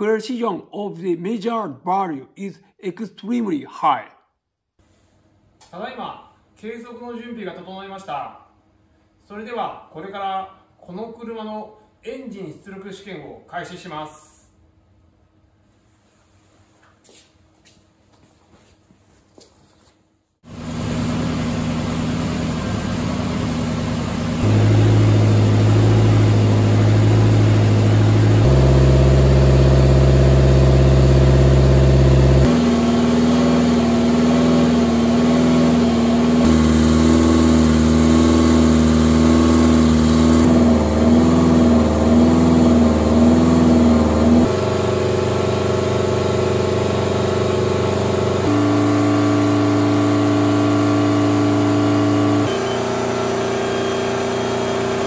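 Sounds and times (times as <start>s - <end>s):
car engine at full throttle: 20.5s - 55.0s.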